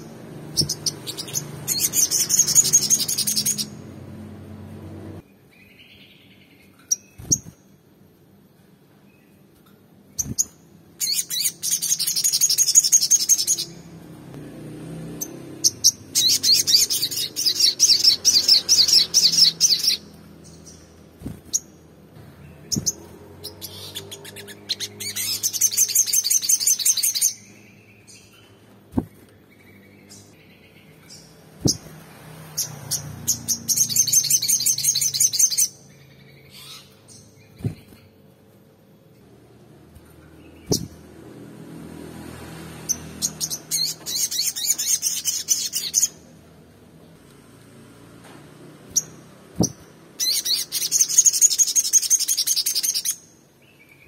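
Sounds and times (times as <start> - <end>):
bird singing a fast trill: 0.0 - 3.8, 10.1 - 13.9, 15.2 - 21.8, 22.4 - 31.9, 32.6 - 38.0, 42.9 - 46.3, 48.9 - 54.0
dull thump: 29.0 - 29.2.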